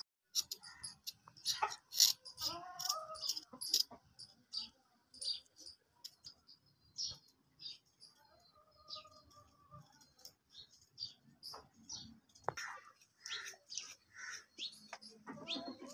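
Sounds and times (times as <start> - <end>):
knife scraping potatoes: 0.3 - 4.0.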